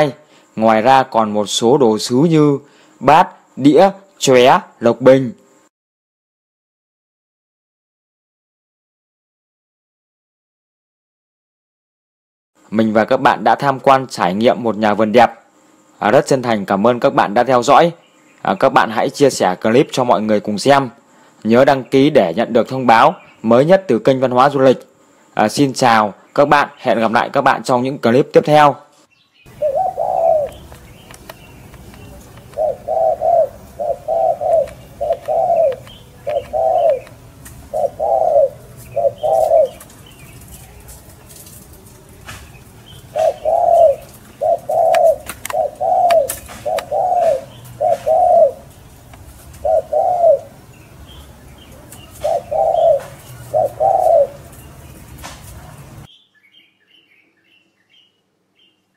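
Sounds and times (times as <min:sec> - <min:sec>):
small birds chirping: 0:12.7 - 0:58.9
dove cooing: 0:29.5 - 0:54.8.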